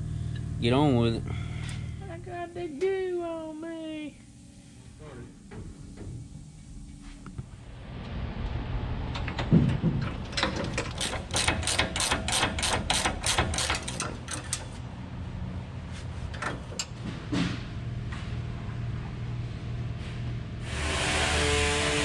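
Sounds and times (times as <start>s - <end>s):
ratcheting wrench clicking: 10.3s - 14.8s.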